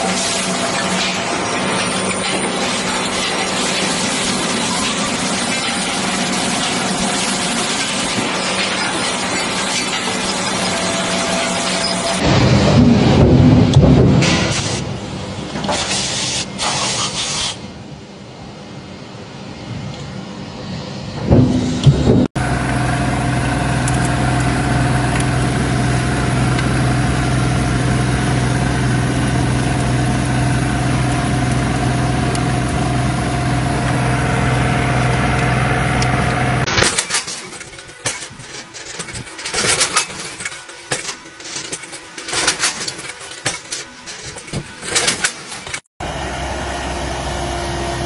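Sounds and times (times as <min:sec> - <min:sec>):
tractor engine running: 0:21.2 - 0:48.0.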